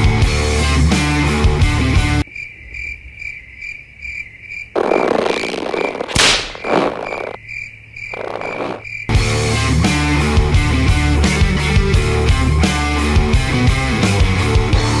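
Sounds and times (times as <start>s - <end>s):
rock music: 0.0s - 2.2s, 9.1s - 15.0s
crickets chirping effect: 2.2s - 9.2s
rough croaking bursts: 2.3s - 9.1s
sharp crack: 4.8s - 7.4s.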